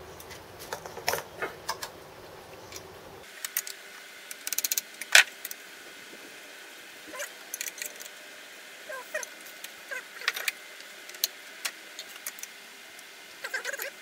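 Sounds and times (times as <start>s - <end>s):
ratchet clicks: 3.4s - 5.6s.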